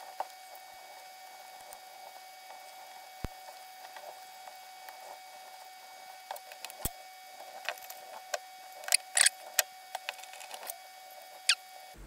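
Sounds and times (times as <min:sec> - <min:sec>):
small metal clicks and scrapes: 0:06.3 - 0:10.8.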